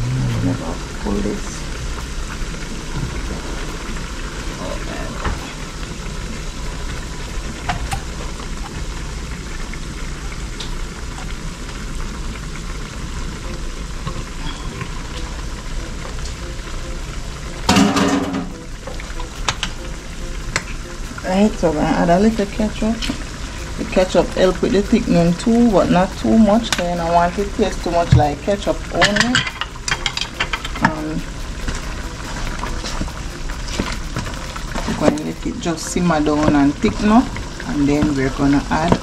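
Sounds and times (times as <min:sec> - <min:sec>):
meat sizzling in a pot: 0:00.0 - 0:39.0.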